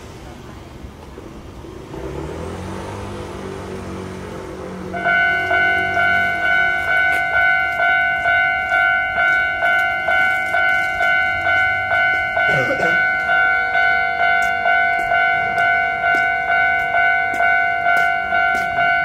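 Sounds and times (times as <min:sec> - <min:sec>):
vehicle engine humming: 0:00.0 - 0:19.0
level crossing alarm bell: 0:04.8 - 0:19.0.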